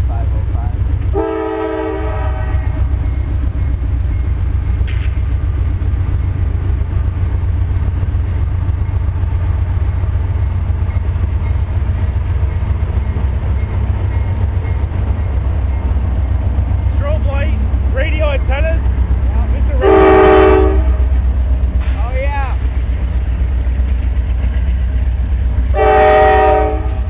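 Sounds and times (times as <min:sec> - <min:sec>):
diesel locomotives rumbling: 0:00.0 - 0:27.0.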